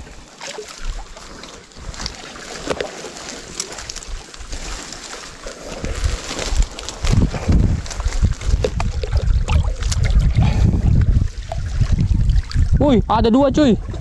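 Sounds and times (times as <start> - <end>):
small clicks and rustles: 1.9 - 9.2
wind rumbling on microphone: 3.8 - 14.0.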